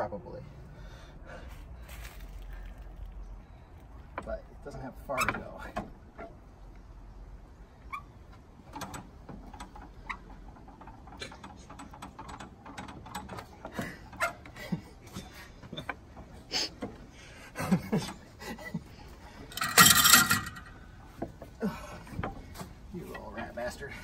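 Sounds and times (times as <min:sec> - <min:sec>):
metal clicks and knocks: 0:08.3 - 0:17.1, 0:19.4 - 0:23.6
metal scraping: 0:19.4 - 0:20.8.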